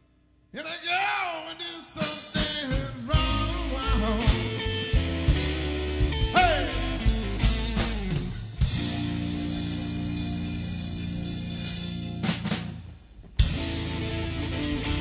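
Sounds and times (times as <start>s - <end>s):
drums: 0.0s - 15.0s
sliding electric guitar lines: 3.1s - 15.0s.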